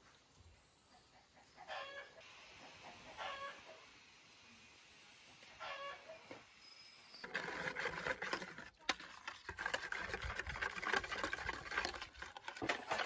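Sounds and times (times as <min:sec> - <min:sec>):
whisk rattling in plastic bowl: 0:07.2 - 0:13.0.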